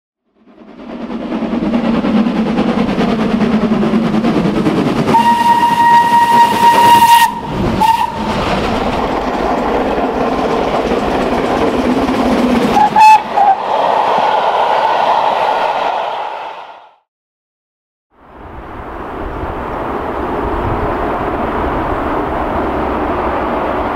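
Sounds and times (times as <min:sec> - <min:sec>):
steam locomotive running: 0:00.3 - 0:16.9
train whistle: 0:05.1 - 0:08.3, 0:12.8 - 0:14.1.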